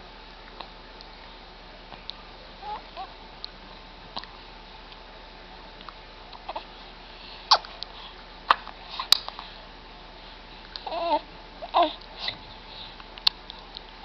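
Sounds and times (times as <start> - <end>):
baby cooing: 2.6 - 3.1, 10.8 - 12.0
baby sucking and chewing fist: 7.5 - 7.9.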